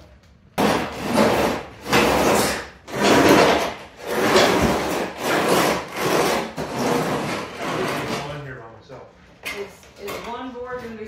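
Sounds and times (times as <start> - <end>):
wooden box scraping on concrete: 0.6 - 8.4.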